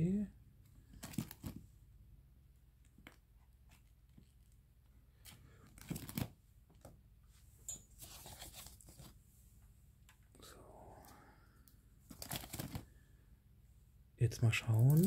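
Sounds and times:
plastic sleeves rustling: 0.8s - 1.7s, 2.8s - 9.3s, 12.0s - 13.0s, 14.6s - 15.0s
page of sleeves turned: 8.0s - 9.2s.

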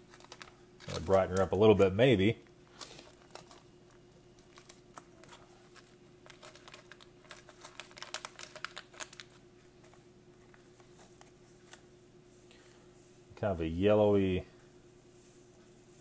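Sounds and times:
foil pouch crinkling: 0.0s - 11.9s.

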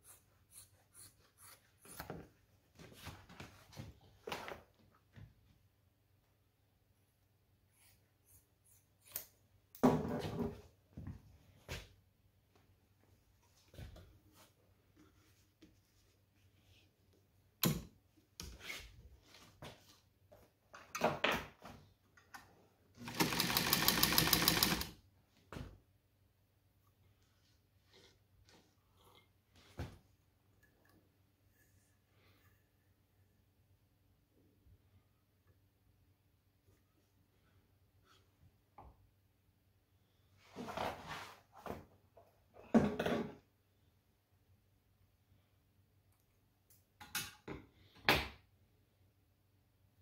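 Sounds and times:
sewing machine stitching: 23.0s - 24.9s.

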